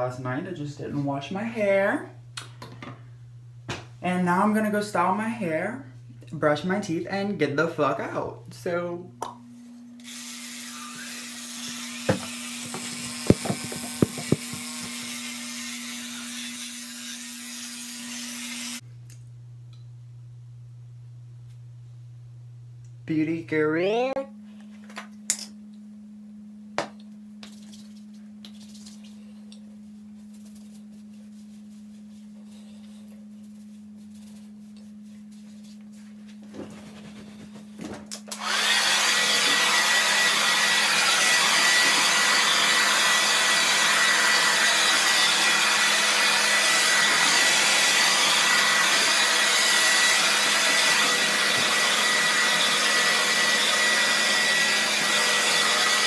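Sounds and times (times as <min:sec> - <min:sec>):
low steady hum: 0:00.0 - 0:10.0, 0:18.8 - 0:38.4
hair dryer running: 0:10.0 - 0:18.8, 0:37.8 - 0:56.0.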